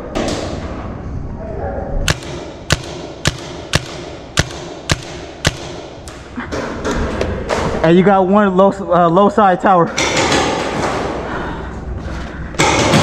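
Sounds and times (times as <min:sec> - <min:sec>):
paintball marker shots: 0:02.1 - 0:06.2.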